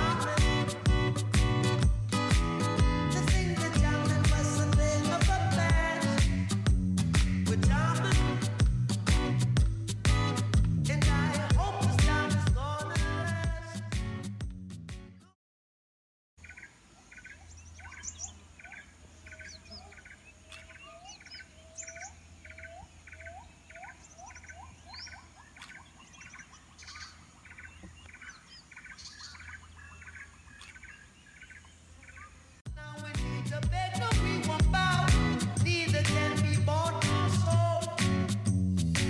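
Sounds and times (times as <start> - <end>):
rising whistled bird notes: 16.4 - 32.3
high chirps: 16.4 - 32.4
repeated bird call: 16.4 - 32.6.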